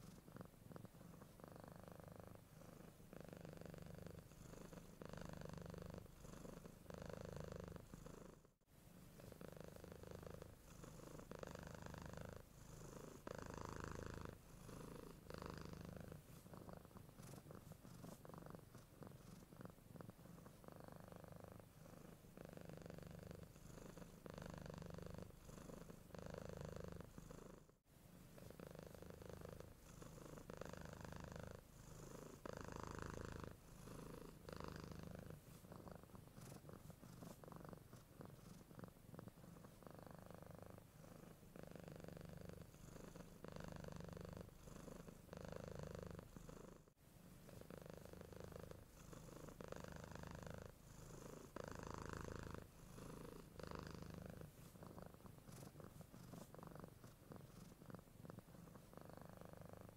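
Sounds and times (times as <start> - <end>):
cat purring softly: 0.0 - 59.9.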